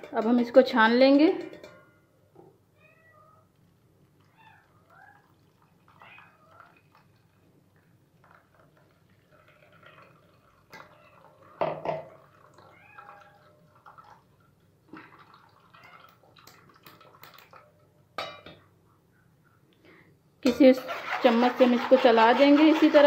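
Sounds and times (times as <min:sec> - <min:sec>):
pulp pouring and dripping through strainer: 0:03.4 - 0:17.9.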